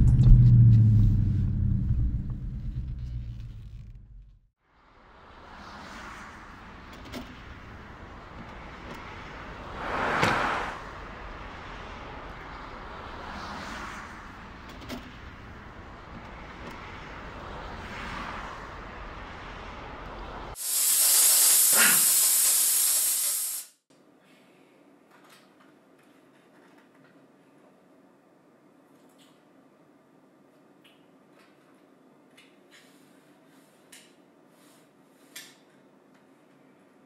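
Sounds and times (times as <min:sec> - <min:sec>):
vehicles passing: 0:00.0 - 0:20.6
road noise: 0:00.0 - 0:23.5
steam iron hissing: 0:20.6 - 0:23.8.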